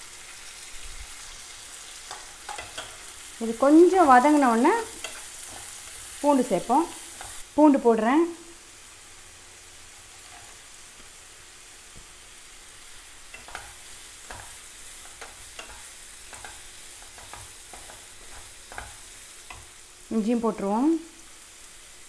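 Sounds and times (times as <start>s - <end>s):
onions and garlic sizzling in oil: 0.0s - 22.0s
wooden spatula scraping a pan: 9.9s - 10.7s, 13.3s - 19.8s.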